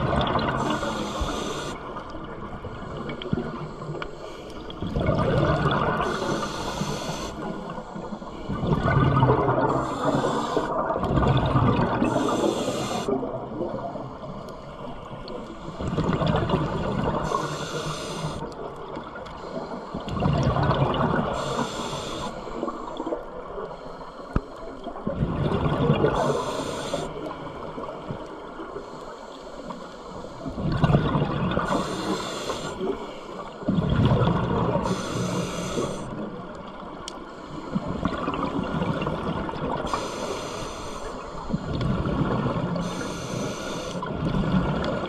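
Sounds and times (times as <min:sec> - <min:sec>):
bubbling gurgling exhale: 0:00.0 - 0:03.7, 0:04.7 - 0:14.3, 0:15.7 - 0:18.5, 0:20.0 - 0:21.9, 0:25.0 - 0:27.2, 0:30.4 - 0:33.0, 0:33.6 - 0:36.4, 0:37.7 - 0:40.5
hissing regulator inhale: 0:00.5 - 0:02.1, 0:06.0 - 0:08.6, 0:09.7 - 0:11.0, 0:12.0 - 0:13.2, 0:17.1 - 0:18.6, 0:21.3 - 0:23.0, 0:23.6 - 0:24.8, 0:26.1 - 0:27.6, 0:31.6 - 0:33.7, 0:34.7 - 0:38.1, 0:39.8 - 0:44.1.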